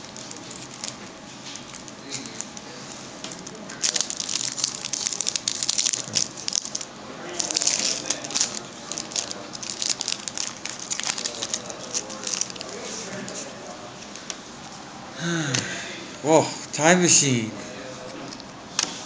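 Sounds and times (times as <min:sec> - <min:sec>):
foil wrapper crinkling and tearing: 0:00.0 - 0:13.4.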